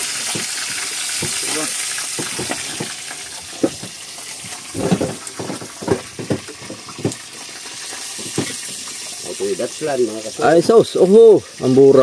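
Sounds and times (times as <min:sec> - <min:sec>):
knocks and thuds on a boat: 0:02.1 - 0:03.0, 0:03.6 - 0:04.0, 0:04.7 - 0:07.2, 0:08.2 - 0:08.7.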